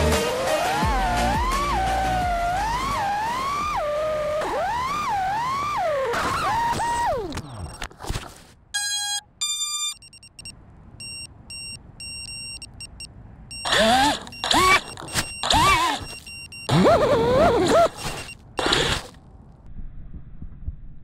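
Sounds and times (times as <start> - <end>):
drone motors revving: 0.0 - 7.8, 13.5 - 19.2
drone motors whining: 0.0 - 7.8, 13.5 - 19.1
start-up tones through motors: 0.0 - 7.8, 13.5 - 19.1
short electronic beeps: 8.8 - 18.8.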